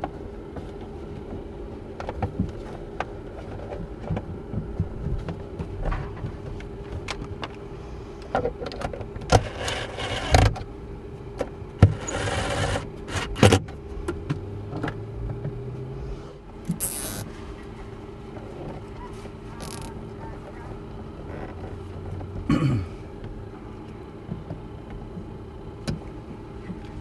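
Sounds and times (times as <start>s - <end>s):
steady low hum: 0.0s - 27.0s
clicks and knocks of cables: 13.1s - 15.7s.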